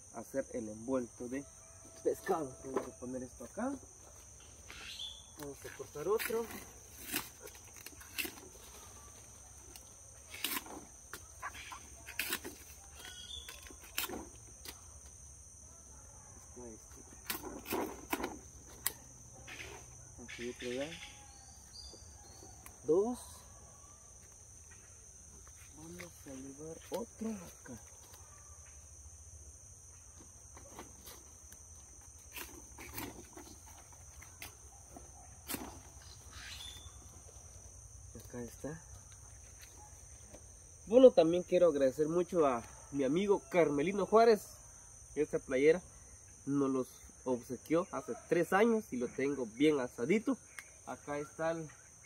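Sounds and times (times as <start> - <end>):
insect drone: 0.0 - 52.0
leaves rustling: 1.4 - 15.6, 16.2 - 29.0, 29.8 - 41.3
machete snapping leaf stalk: 9.7 - 11.3, 12.0 - 15.1.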